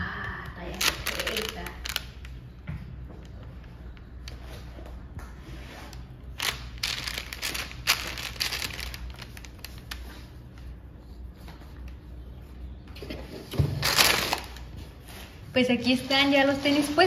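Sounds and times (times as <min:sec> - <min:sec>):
tissue paper crinkling: 0:00.7 - 0:02.1, 0:06.4 - 0:10.2.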